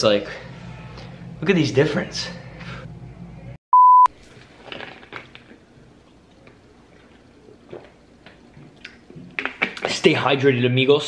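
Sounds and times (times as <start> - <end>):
electronic beep: 3.7 - 4.1
person drinking and swallowing: 6.2 - 9.9.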